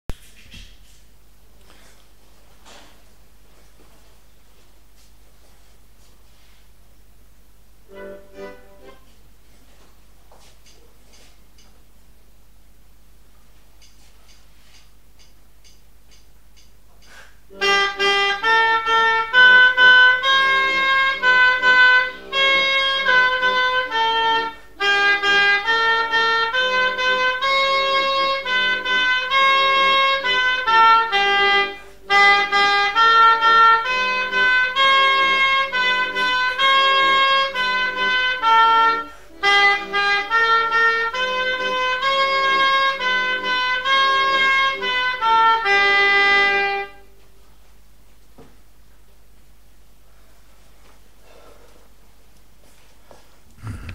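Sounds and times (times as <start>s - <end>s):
oboe melody: 7.8s - 9.2s, 17.5s - 47.4s.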